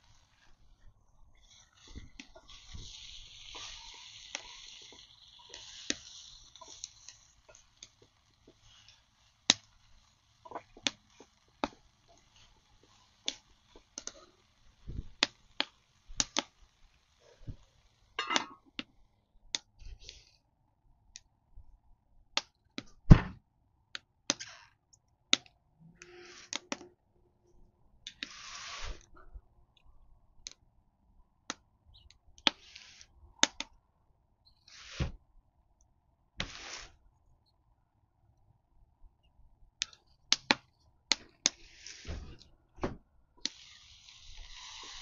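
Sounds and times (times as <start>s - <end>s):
vegetables sizzling in a pot: 0.0s - 18.8s, 28.1s - 29.0s, 32.5s - 33.1s, 36.4s - 37.0s, 41.2s - 42.4s, 43.4s - 45.0s
cooking clicks and knocks: 1.4s - 19.0s.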